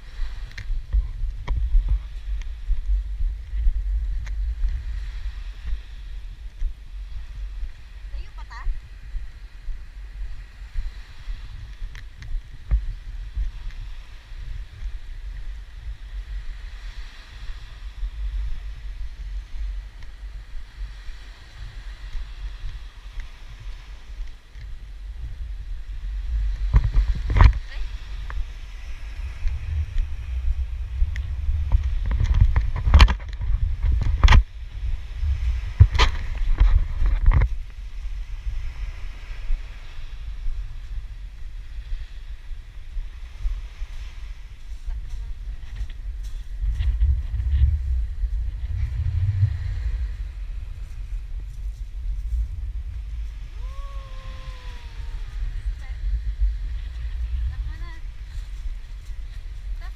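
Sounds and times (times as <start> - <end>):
wind buffeting microphone: 0.0 - 59.9
faint surf hiss: 37.4 - 59.9.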